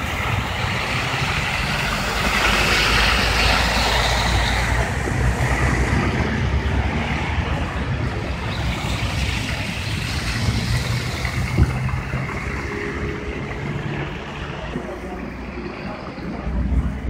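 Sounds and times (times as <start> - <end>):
car engines: 0.0 - 17.0
tyres hissing through wet snow: 0.1 - 5.9.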